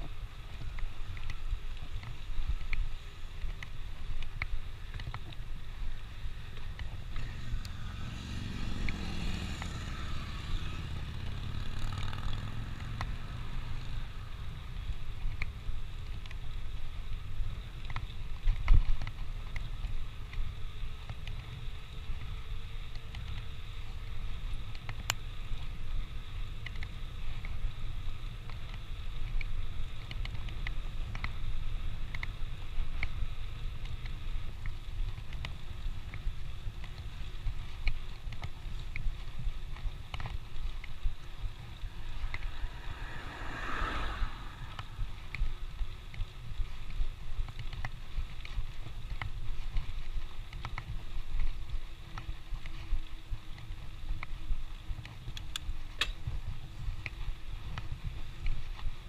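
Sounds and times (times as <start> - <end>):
bicycle clicks and rattles: 0.0 - 7.8, 11.0 - 43.7, 44.7 - 59.0
road rumble: 0.0 - 59.0
wind buffeting microphone: 36.0 - 59.0.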